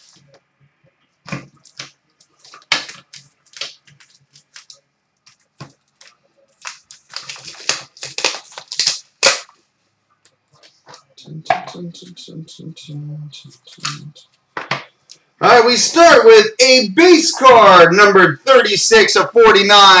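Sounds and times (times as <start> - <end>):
cardboard and wrapping tearing: 5.4 - 9.5.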